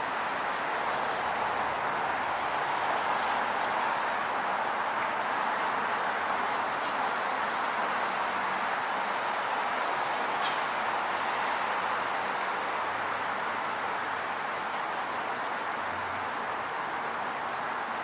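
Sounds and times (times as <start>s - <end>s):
road traffic hum: 0.0s - 18.0s.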